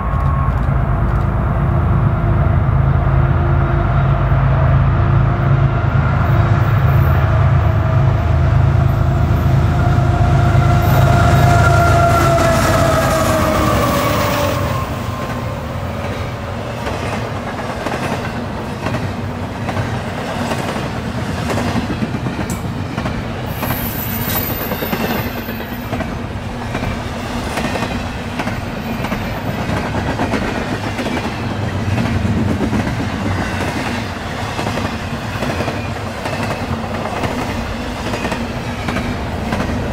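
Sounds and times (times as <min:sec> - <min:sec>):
train wheels clattering on rails: 0:00.0 - 0:01.8, 0:10.8 - 0:39.9
locomotive horn: 0:07.0 - 0:15.6.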